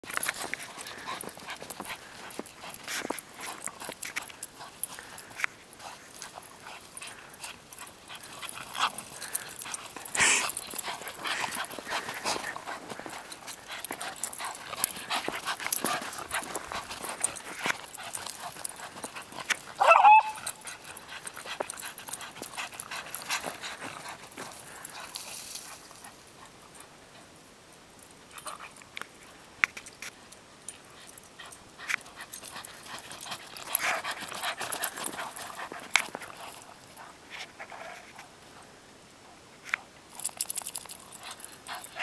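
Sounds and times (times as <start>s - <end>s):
movement through snow and brush: 0.0s - 27.3s
dog barking: 19.8s - 20.4s.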